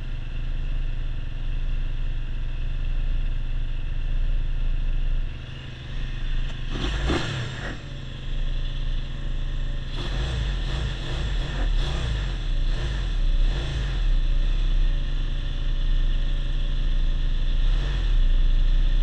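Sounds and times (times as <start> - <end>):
motorcycle engine idling: 0.0 - 11.8, 14.0 - 19.0.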